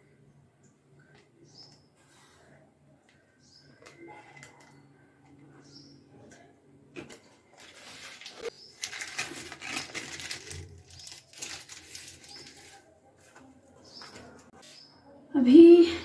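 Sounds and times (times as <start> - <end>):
bird chirping: 1.4 - 1.9, 3.4 - 6.3
paper wrapper rustling: 7.1 - 13.4.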